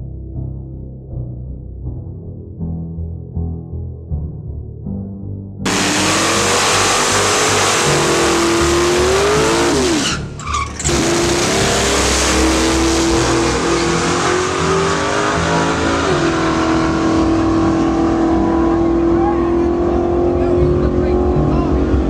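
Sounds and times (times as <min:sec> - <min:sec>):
car engine at high revs: 0:05.7 - 0:10.2, 0:10.8 - 0:22.0
tyres spinning and squealing: 0:05.7 - 0:16.8.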